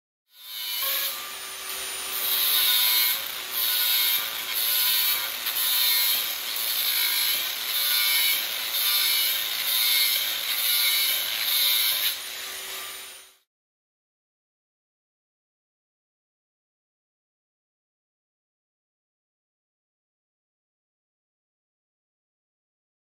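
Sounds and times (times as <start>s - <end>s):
angle grinder cutting wire mesh: 0.3s - 13.5s.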